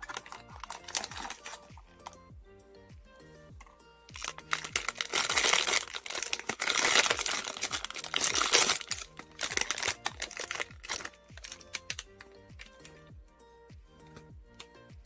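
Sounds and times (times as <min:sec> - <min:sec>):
foil pouch crinkling: 0:00.0 - 0:01.8, 0:04.1 - 0:12.9.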